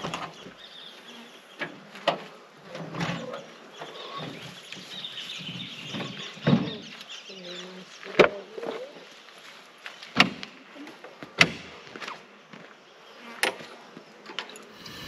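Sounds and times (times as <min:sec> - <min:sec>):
birds chirping: 0:00.0 - 0:10.2, 0:14.6 - 0:15.0.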